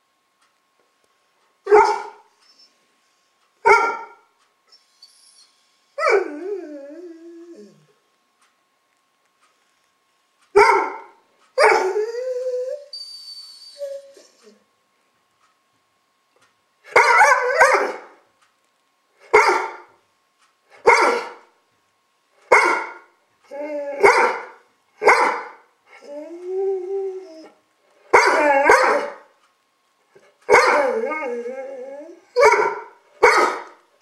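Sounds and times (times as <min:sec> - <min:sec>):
dog bark-howl: 0:01.7 - 0:02.2, 0:03.6 - 0:04.2, 0:10.6 - 0:12.1, 0:16.9 - 0:18.2, 0:19.3 - 0:19.9, 0:20.8 - 0:21.4, 0:22.5 - 0:23.1, 0:23.8 - 0:25.6, 0:28.1 - 0:29.3, 0:30.5 - 0:33.8
dog barking: 0:01.7 - 0:02.3, 0:03.6 - 0:04.2, 0:10.6 - 0:11.8, 0:16.9 - 0:18.1, 0:19.3 - 0:19.9, 0:20.8 - 0:21.4, 0:22.5 - 0:23.1, 0:24.0 - 0:25.6, 0:28.1 - 0:29.3, 0:30.5 - 0:30.8, 0:32.4 - 0:33.8.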